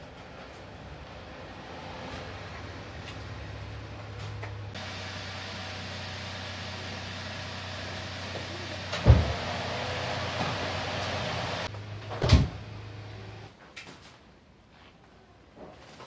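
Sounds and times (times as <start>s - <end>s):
steady low hum: 4.6s - 13.5s
heavy thump: 9.0s - 9.6s.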